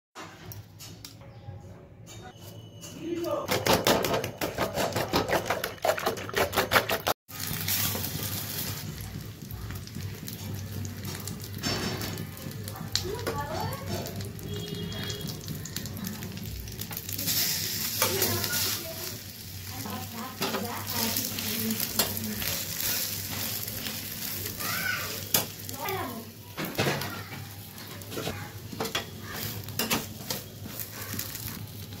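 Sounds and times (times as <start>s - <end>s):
bread frying in oil: 3.6s - 32.0s
spatula scraping a pan: 4.4s - 8.8s, 17.3s - 24.4s, 27.8s - 31.7s.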